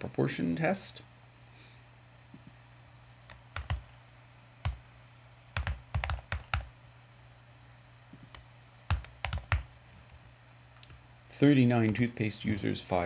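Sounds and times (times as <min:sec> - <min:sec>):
computer keyboard typing: 0:03.3 - 0:03.8, 0:05.6 - 0:06.7, 0:08.3 - 0:11.0.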